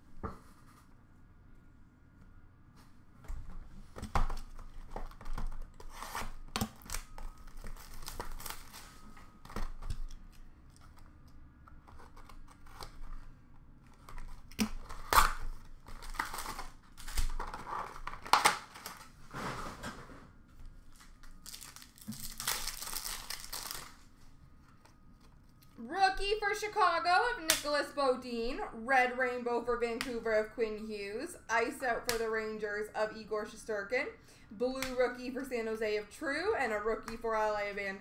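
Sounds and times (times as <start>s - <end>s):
foil wrappers ripping and crinkling: 4.6s - 11.1s, 14.0s - 19.2s, 20.9s - 24.2s.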